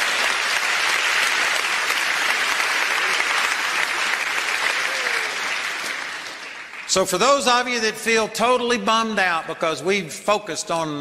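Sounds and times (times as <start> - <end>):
congregation applauding: 0.0 - 8.2.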